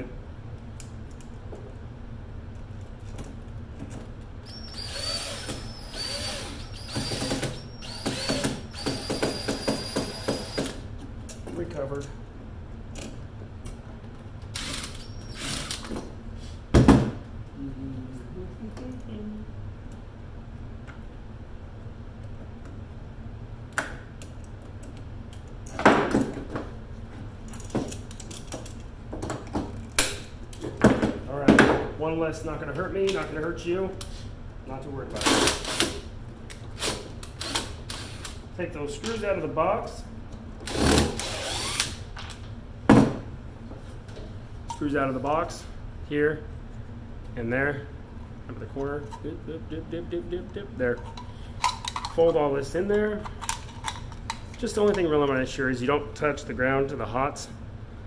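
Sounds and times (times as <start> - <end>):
steady low hum: 0.0 - 58.0
cordless drill driving screws: 4.5 - 10.8, 14.6 - 15.9, 40.7 - 42.0
drill clicks: 4.5 - 10.8, 40.7 - 42.0
metal parts clicking and clattering: 51.1 - 52.2.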